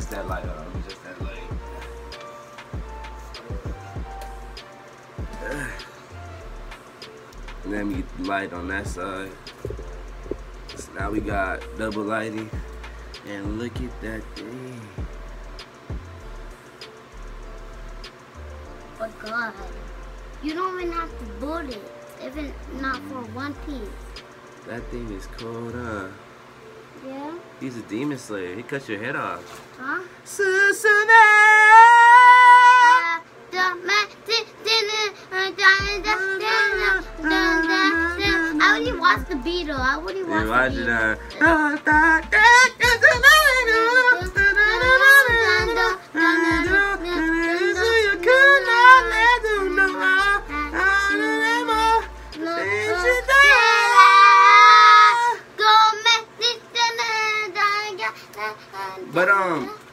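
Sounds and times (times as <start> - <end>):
person singing a long high note: 30.4 - 33.2, 41.4 - 55.5
child singing: 31.4 - 59.0.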